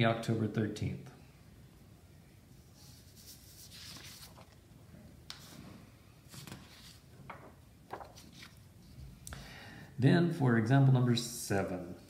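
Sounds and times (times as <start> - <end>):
paper rustling: 2.8 - 4.7, 6.3 - 9.1.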